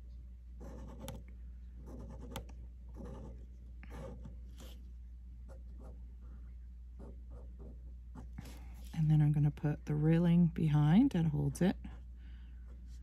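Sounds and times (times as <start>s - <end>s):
pen scratching on paper: 0.6s - 1.2s, 1.8s - 4.7s.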